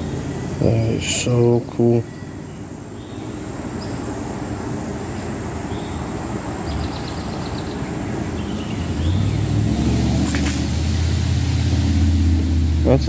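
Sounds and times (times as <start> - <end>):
car passing by: 6.2 - 13.0.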